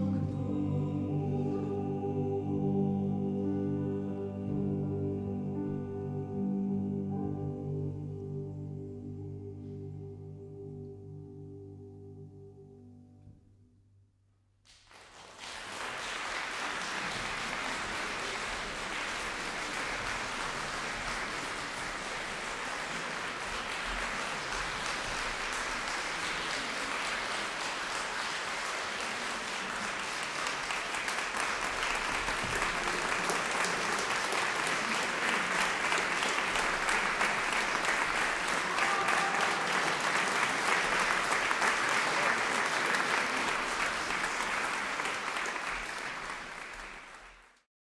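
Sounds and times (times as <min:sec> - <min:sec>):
audience applauding: 0:14.7 - 0:47.7.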